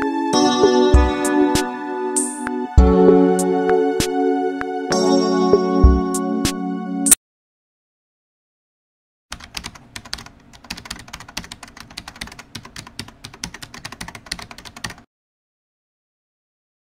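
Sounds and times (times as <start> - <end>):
keyboard typing clicks: 9.3 - 15.0.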